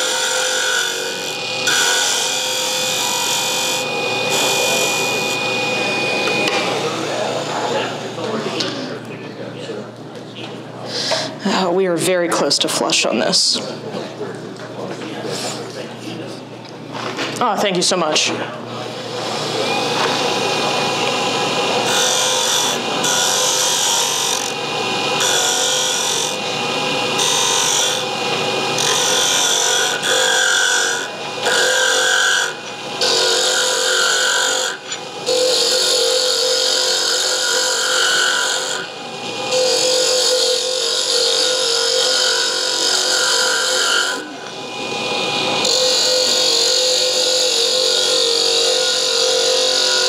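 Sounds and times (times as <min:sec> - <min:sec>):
wood lathe running: 0:00.0 - 0:08.6, 0:18.8 - 0:50.0.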